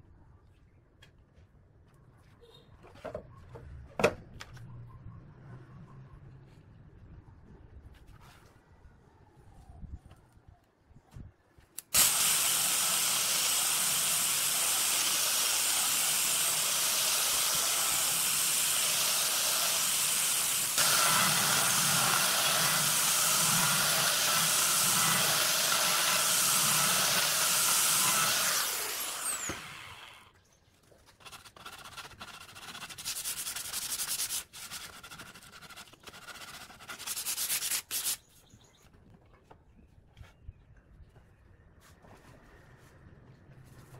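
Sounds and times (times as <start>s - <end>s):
angle grinder sanding wood: 12.0s - 30.1s
rubbing and scraping: 31.0s - 38.3s.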